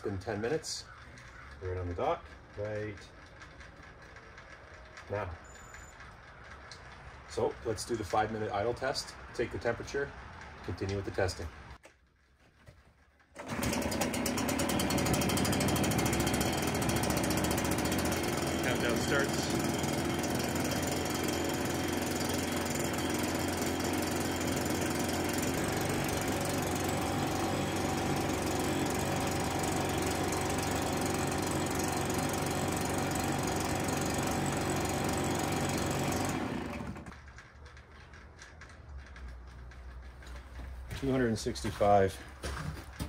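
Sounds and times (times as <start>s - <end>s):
leaf blower engine idling: 13.3s - 37.2s.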